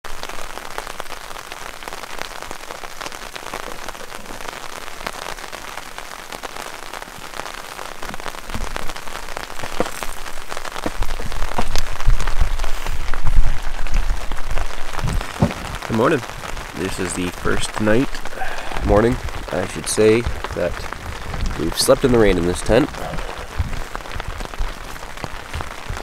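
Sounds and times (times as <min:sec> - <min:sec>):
rain pattering on tent fabric: 0:00.0 - 0:26.0
low thuds and rumble: 0:23.1 - 0:24.7.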